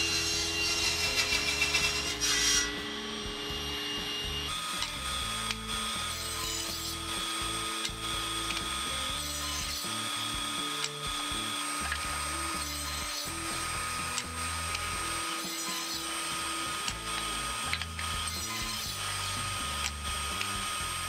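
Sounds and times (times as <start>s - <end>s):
background music: 0.0s - 21.0s
table saw ripping wood: 0.0s - 21.0s.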